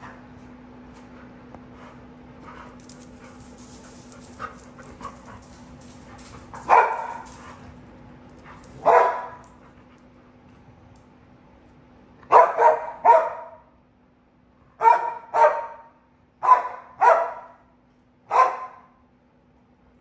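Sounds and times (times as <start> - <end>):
dog barking: 6.6 - 7.3, 8.8 - 9.5, 12.3 - 13.7, 14.8 - 17.7, 18.3 - 19.0.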